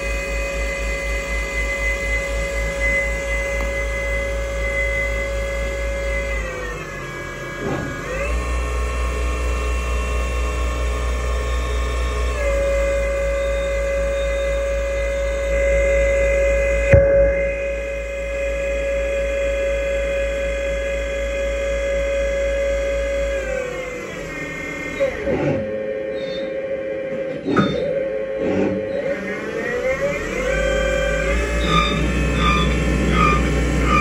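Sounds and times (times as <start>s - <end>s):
lathe spindle whine: 0.0s - 34.0s
constant low rumble: 10.4s - 24.0s.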